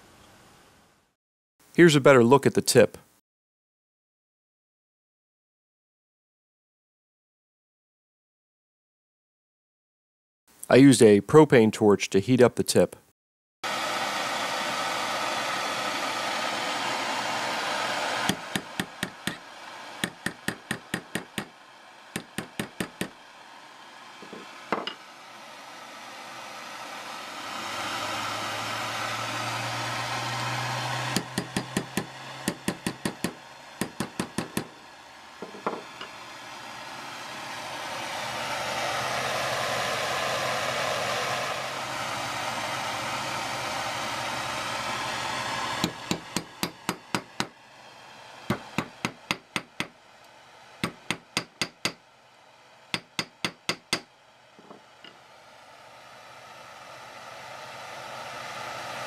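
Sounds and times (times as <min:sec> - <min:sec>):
propane torch hissing: 0:13.7 - 0:59.0.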